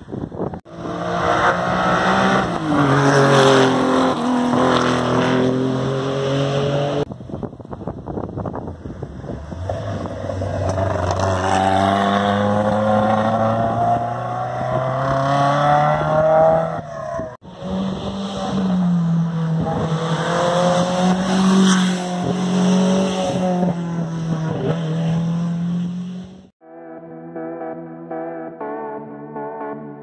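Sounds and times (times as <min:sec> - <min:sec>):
rally car engine revving: 0:00.7 - 0:07.1, 0:09.2 - 0:26.5
engine at high revs changing gear: 0:09.2 - 0:16.8, 0:17.4 - 0:26.5.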